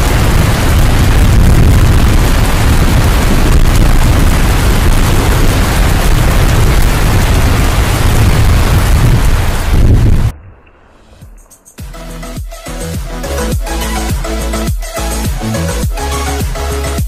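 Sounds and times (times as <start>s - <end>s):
heavy rain: 0.0s - 10.4s
wind buffeting microphone: 0.0s - 10.4s.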